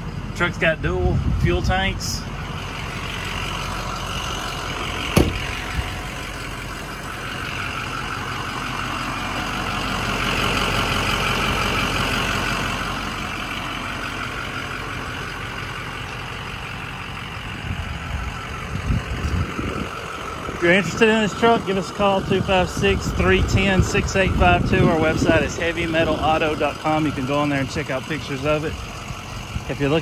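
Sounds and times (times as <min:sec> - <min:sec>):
diesel engine idling: 0:00.0 - 0:30.0
sharp knock: 0:05.2 - 0:05.4.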